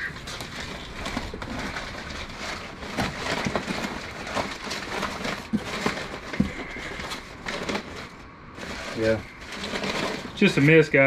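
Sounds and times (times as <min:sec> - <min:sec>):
packing paper rustling: 0:00.0 - 0:11.0.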